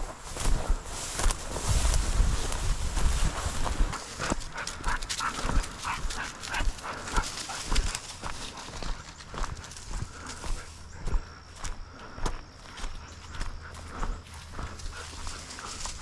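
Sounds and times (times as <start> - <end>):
footsteps in dry cover: 0.0 - 16.0
dog panting: 4.0 - 11.4, 12.8 - 16.0.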